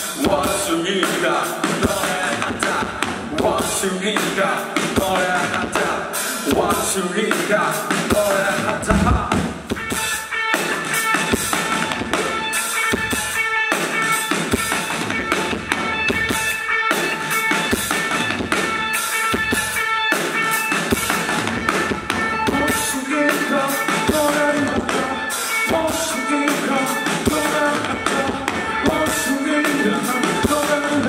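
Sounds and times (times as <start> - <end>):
drum kit: 0.0 - 31.0
electric guitars: 0.0 - 31.0
electric bass: 8.6 - 10.0.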